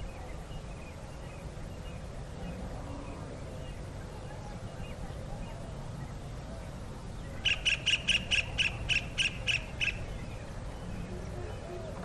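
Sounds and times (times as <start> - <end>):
kingfisher calling: 7.4 - 10.3.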